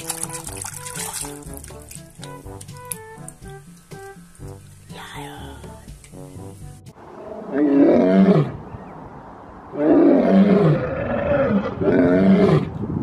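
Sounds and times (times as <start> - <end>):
lion roaring: 7.1 - 8.6, 9.7 - 12.8.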